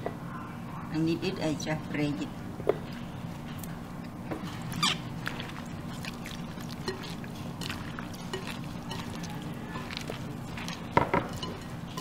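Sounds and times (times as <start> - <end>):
vegetables rustling in glass bowl: 4.4 - 12.0.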